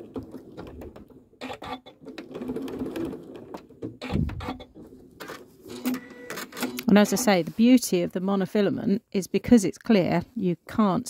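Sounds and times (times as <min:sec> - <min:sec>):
sewing machine stitching: 0:00.0 - 0:07.4.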